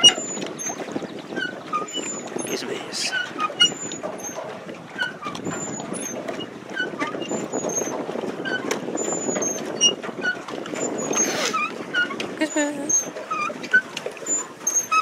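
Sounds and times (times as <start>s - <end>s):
paddle wheel splashing water: 0.0s - 15.0s.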